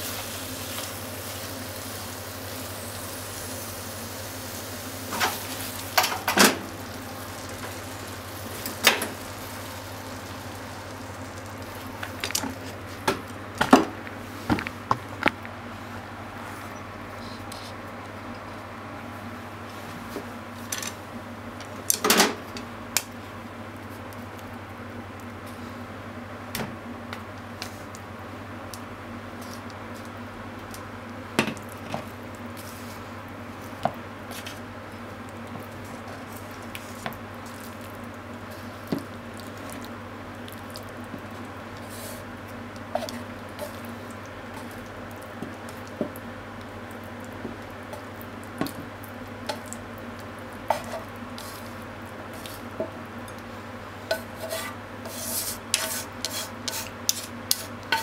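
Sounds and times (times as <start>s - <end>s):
chopsticks clattering in frying pan: 55.8s - 58.0s.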